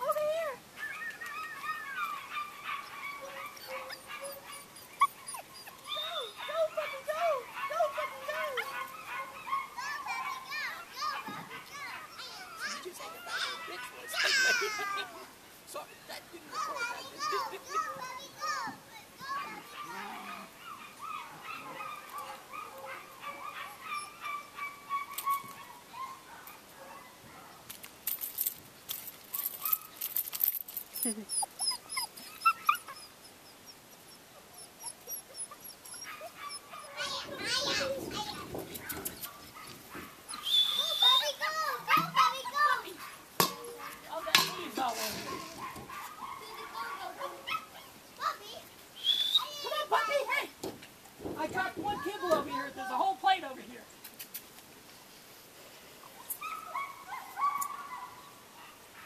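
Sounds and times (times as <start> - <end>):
puppies whining: 0.8 - 15.1, 19.3 - 26.2, 30.9 - 42.7, 43.4 - 48.0
sharp clicks and rustles: 27.7 - 31.1.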